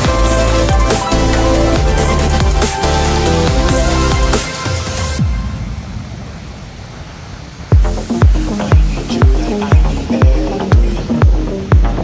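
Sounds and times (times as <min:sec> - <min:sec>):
synth notes: 0:00.0 - 0:12.0
heavy kick drum: 0:01.8 - 0:04.5, 0:07.7 - 0:12.0.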